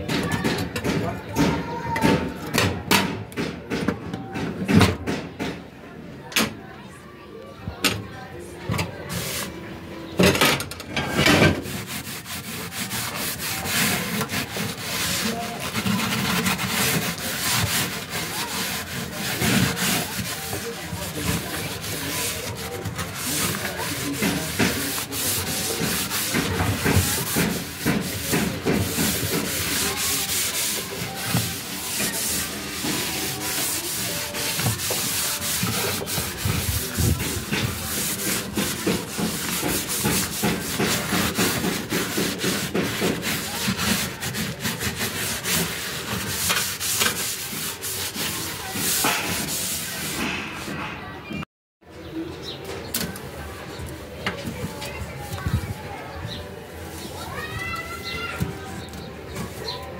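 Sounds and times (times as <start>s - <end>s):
sponge scrubbing cooker top: 9.0s - 9.5s, 11.0s - 50.9s.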